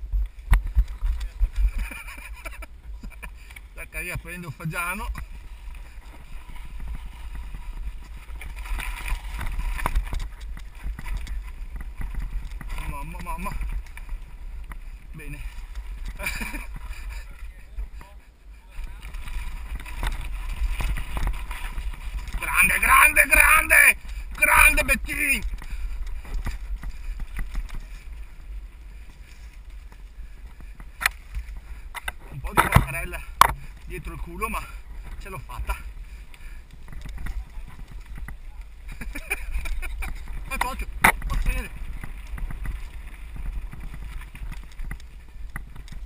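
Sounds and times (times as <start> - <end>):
wind rumble on microphone: 0.0 - 46.0
bike jolting over rocks: 0.6 - 18.0, 18.9 - 46.0
bike knocks and rattles: 30.6 - 33.8.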